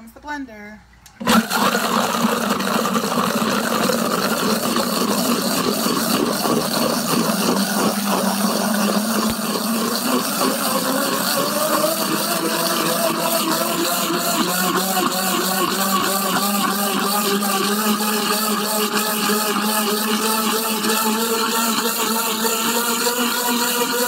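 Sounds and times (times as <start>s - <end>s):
blender running: 1.2s - 24.0s.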